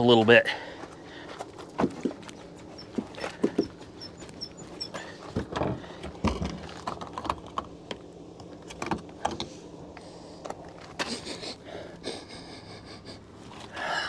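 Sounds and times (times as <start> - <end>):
car body clunking and rattling: 5.2 - 7.8.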